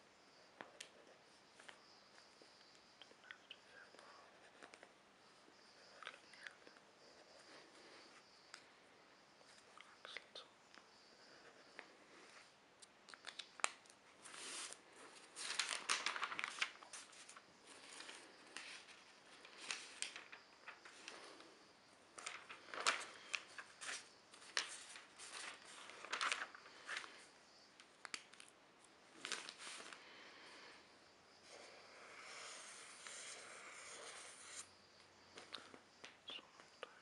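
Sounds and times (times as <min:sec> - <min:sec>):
newspaper pages rustling: 0:13.6 - 0:21.2, 0:22.2 - 0:27.2, 0:29.2 - 0:30.0.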